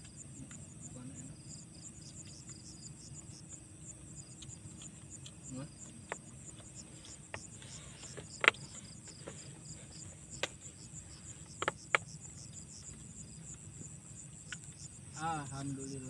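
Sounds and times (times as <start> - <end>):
crickets chirping: 0.0 - 16.0
sharp clicks and knocks: 7.3 - 9.4, 11.5 - 12.4.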